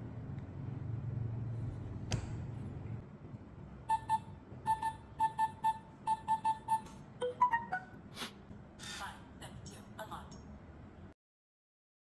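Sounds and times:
rising and falling chime notes: 0:06.1 - 0:08.0.

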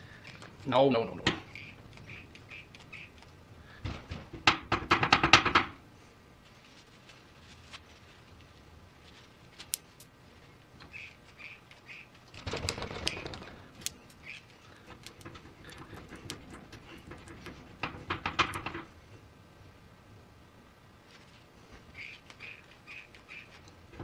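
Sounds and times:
metallic clicks and rattles: 0:14.8 - 0:18.9.

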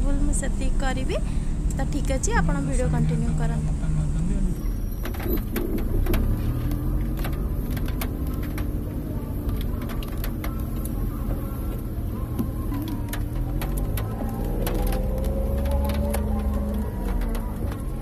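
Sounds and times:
engine and tyre rumble: 0:00.0 - 0:18.0
raindrops ticking on roof: 0:01.7 - 0:18.0.

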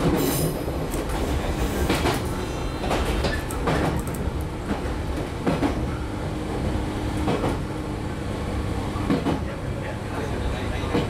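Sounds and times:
wheels clacking over rail joints: 0:00.0 - 0:06.1, 0:07.1 - 0:07.7
train wheels rumbling: 0:00.0 - 0:11.0.

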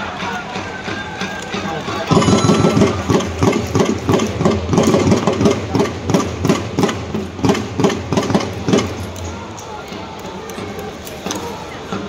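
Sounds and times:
fast cheer drum beating: 0:00.0 - 0:08.9.

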